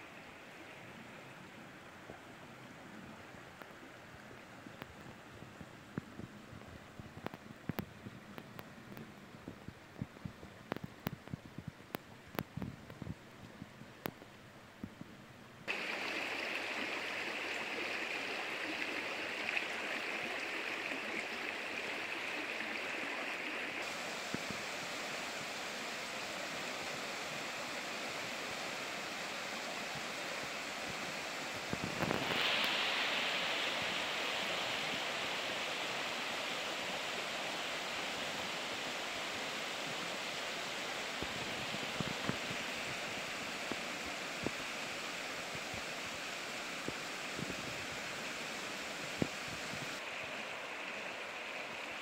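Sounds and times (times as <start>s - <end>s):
river water rushing: 0.0s - 7.0s, 15.7s - 52.0s.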